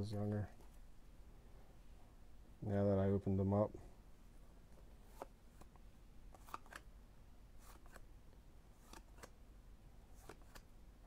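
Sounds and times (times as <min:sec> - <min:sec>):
cards flipped through by hand: 0:04.9 - 0:06.9, 0:07.6 - 0:08.1, 0:08.8 - 0:09.4, 0:10.1 - 0:10.8.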